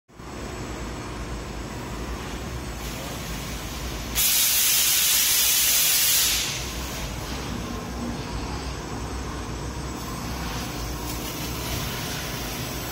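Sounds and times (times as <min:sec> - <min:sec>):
gas hissing from cutting head: 0:04.1 - 0:07.2.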